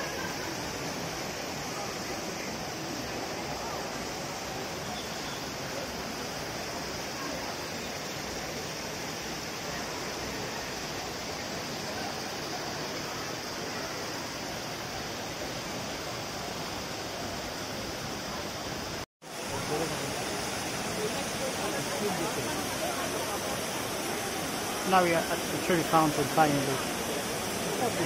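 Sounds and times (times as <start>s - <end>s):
fountain water cascading: 0.0s - 28.0s
murmur of crowd: 19.3s - 28.0s.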